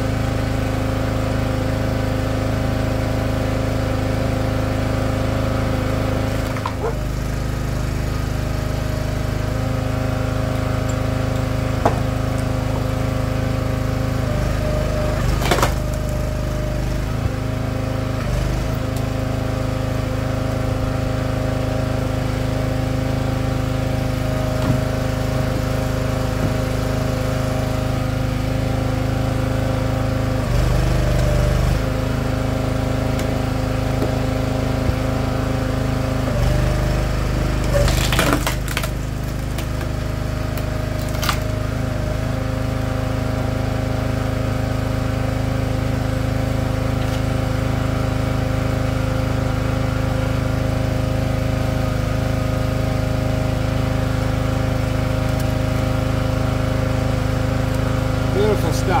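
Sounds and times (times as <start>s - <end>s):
log splitter engine running: 0.0s - 59.0s
log cracking apart: 15.1s - 16.3s, 37.6s - 41.7s.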